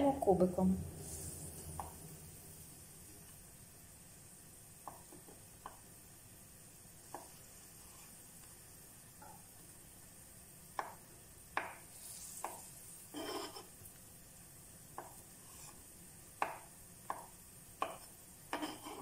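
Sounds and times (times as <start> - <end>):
knife chopping on wooden board: 10.8 - 11.0, 11.6 - 11.8, 16.4 - 19.0.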